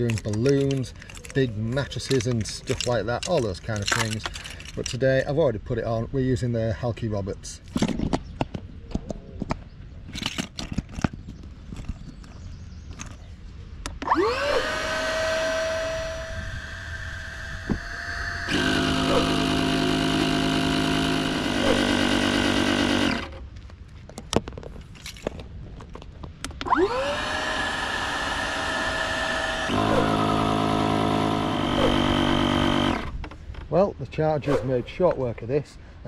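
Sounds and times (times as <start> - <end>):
electric air pump whining: 14.0 - 23.4, 26.6 - 33.2.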